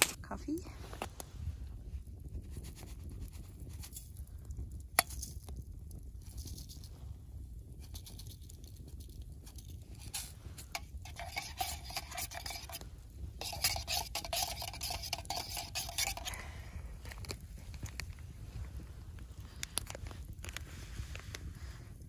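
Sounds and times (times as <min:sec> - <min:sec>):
spoon scraping metal pot: 0:07.8 - 0:08.6, 0:09.4 - 0:16.6.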